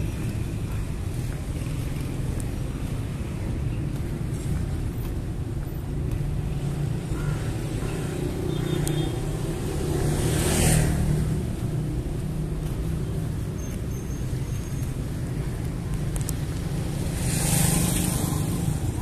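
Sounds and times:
motorcycle passing: 7.0s - 13.4s, 16.5s - 19.0s.

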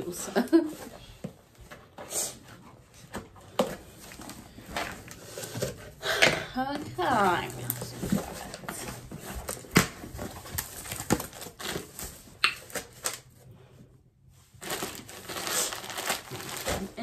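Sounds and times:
plastic packaging rustling: 2.6s - 13.5s, 14.5s - 17.0s.

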